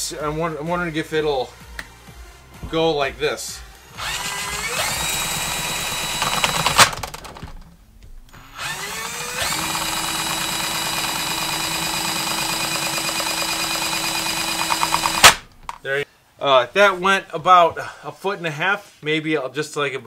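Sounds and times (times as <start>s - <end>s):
drain auger motor whining: 3.6s - 7.7s, 8.3s - 15.7s
sharp click: 14.7s - 15.8s.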